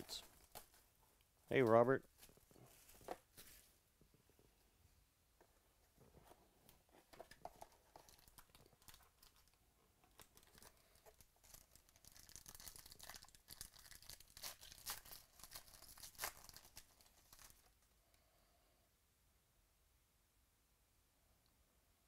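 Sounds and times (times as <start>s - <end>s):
foil wrapper crinkling: 7.6s - 17.7s.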